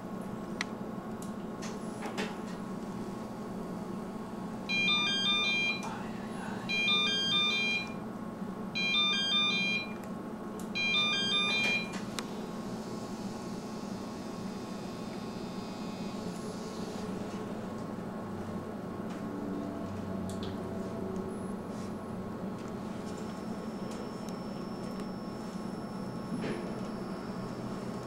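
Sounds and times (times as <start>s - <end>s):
electronic beeping tune: 4.7s - 5.8s, 10.8s - 11.9s.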